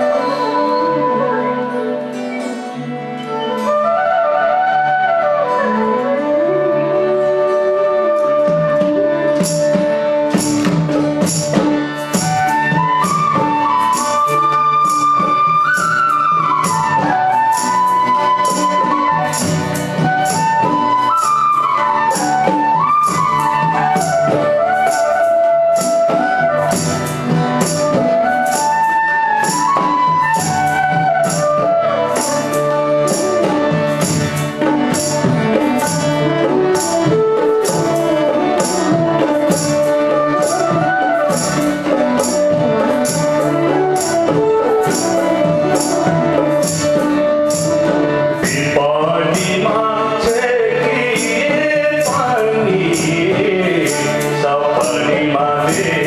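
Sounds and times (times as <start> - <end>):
bamboo flute melody: 0.0 - 56.0
harmonium: 0.0 - 56.0
jingling beat: 33.1 - 56.0
person singing: 48.3 - 56.0.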